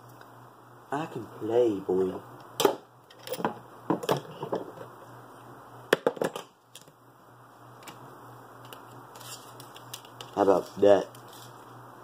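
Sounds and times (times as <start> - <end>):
low steady hum: 0.0 - 12.0
tools knocking on workbench: 3.4 - 4.7, 5.9 - 6.4.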